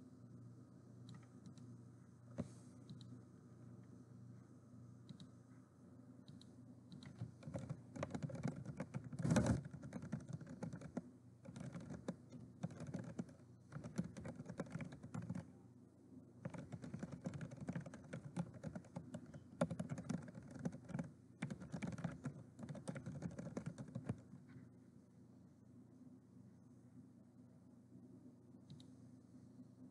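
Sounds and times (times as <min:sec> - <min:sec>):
typing on keyboard: 0:06.3 - 0:15.5, 0:16.4 - 0:24.3.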